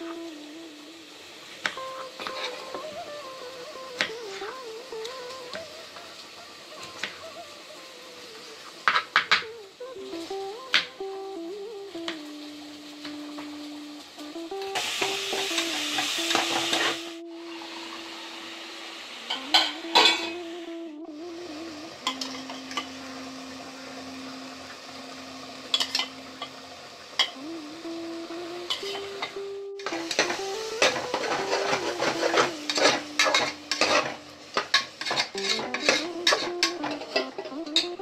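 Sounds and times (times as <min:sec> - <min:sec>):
food sizzling in a pan: 0:00.0 - 0:38.0
spoon scraping a pan: 0:02.2 - 0:02.7, 0:19.3 - 0:20.4, 0:29.8 - 0:37.9.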